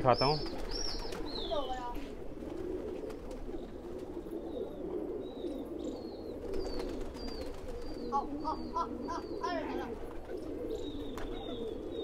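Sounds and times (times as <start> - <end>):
bird chirping: 0.0 - 1.9, 4.5 - 12.0
pigeons cooing: 0.0 - 12.0.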